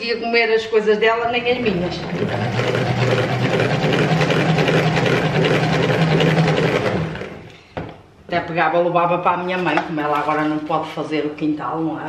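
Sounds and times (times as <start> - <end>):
salad spinner whirring: 1.4 - 7.5.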